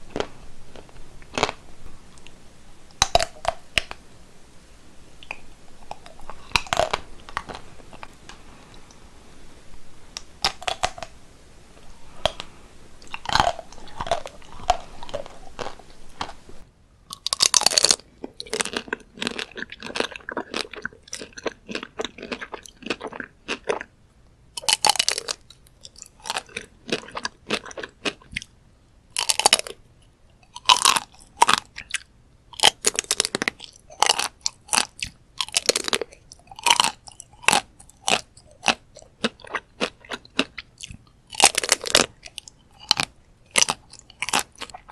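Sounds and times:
faint background hiss: 0.0 - 44.9
chocolate shell crunching: 5.3 - 8.1, 17.1 - 23.9, 24.6 - 28.3, 29.2 - 29.8, 30.4 - 44.9.

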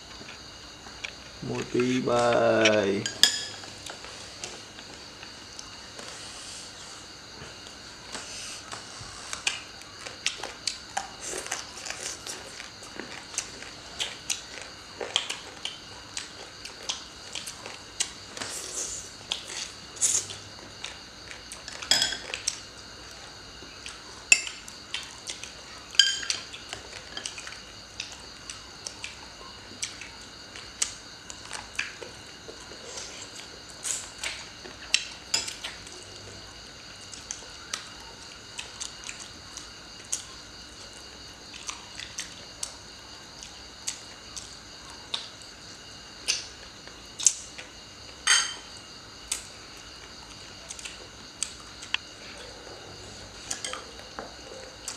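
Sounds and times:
chopsticks clinking on dishes: 26.0 - 26.4.

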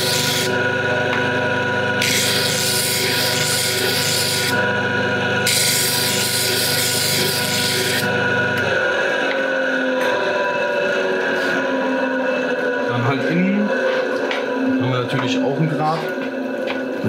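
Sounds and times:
motor winding down: 0.0 - 14.4
disc sander running: 0.0 - 17.0
metal grinding on sanding disc: 2.0 - 4.6, 5.4 - 8.1.

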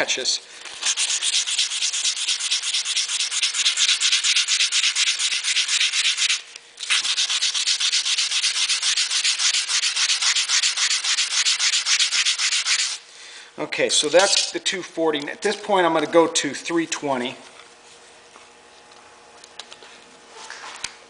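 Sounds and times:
sandpaper rasping on metal: 0.8 - 13.0, 14.1 - 14.5.

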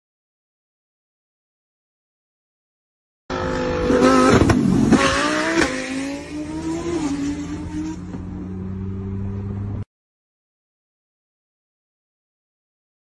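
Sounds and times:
car engine revving hard: 3.3 - 9.8.

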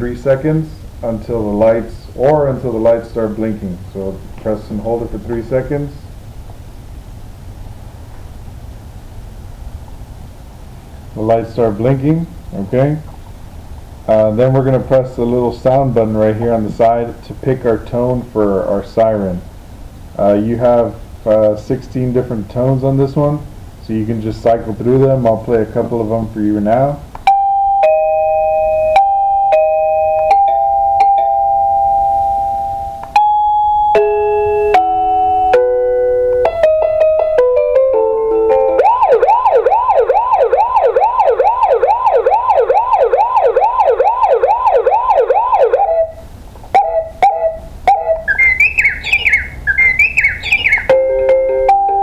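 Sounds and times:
ding-dong chime: 27.3 - 35.7, 50.9 - 52.0
alarm melody notes: 27.3 - 46.2, 46.8 - 52.0
warbling siren: 38.5 - 46.2, 46.8 - 51.0
quick chirping tones: 45.7 - 52.0.

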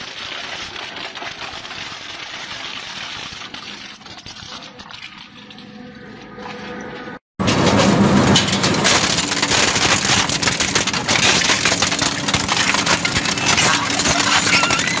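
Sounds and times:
shredder cutter discs clattering: 7.4 - 15.0.

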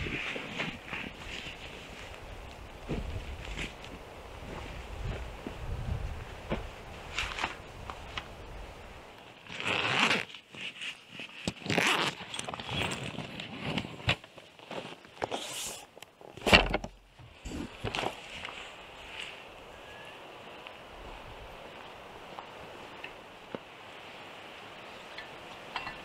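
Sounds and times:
zip being pulled open: 9.4 - 14.1.

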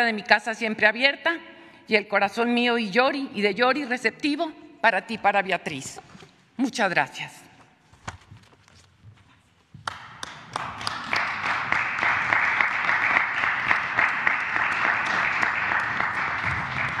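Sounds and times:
audience applauding: 9.8 - 17.0.

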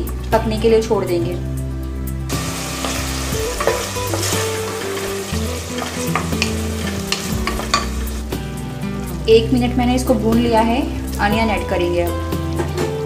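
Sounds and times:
food sizzling in hot oil: 2.3 - 9.1
wooden spatula stirring: 2.5 - 8.2
spatula knocking against pot: 6.1 - 8.0.

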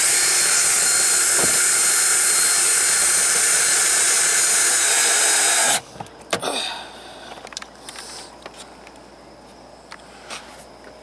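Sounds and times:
power drill driving a screw: 0.0 - 5.8.

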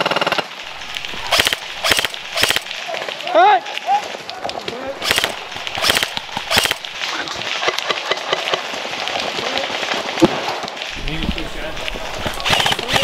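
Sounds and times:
airsoft gun shots: 1.0 - 2.8, 5.0 - 7.0.

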